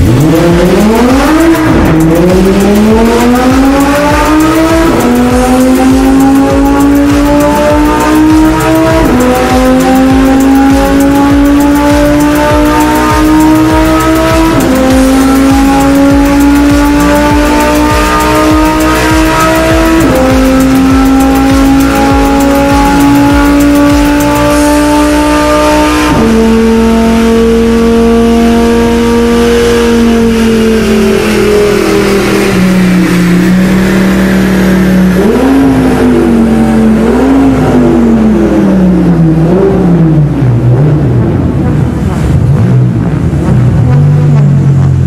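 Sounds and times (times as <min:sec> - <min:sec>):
car engine revving: 0:00.0 - 0:45.0.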